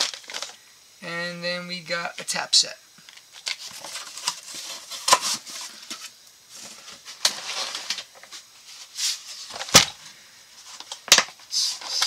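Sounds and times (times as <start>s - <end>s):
rustling: 3.1s - 12.0s.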